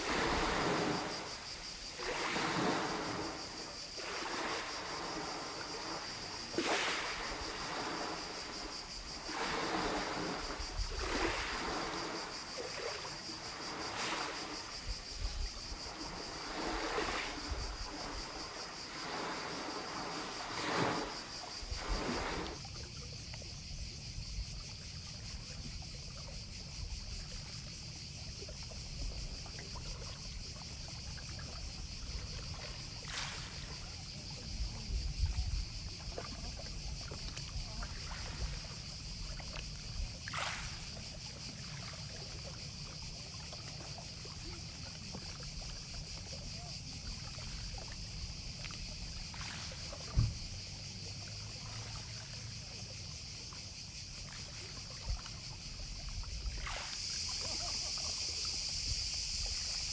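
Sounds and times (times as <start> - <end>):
high-pitched hiss: 0.0 - 22.7, 52.9 - 59.9
waves lapping at the shore: 0.0 - 59.9.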